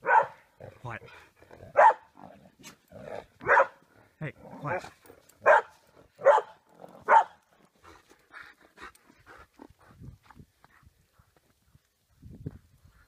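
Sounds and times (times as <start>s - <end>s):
dog barking: 0.0s - 0.4s, 1.7s - 2.1s, 3.4s - 3.8s, 5.4s - 7.4s.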